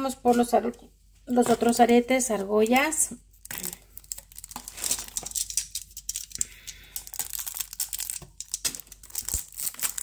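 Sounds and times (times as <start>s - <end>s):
plastic packaging crinkling: 2.7s - 10.0s.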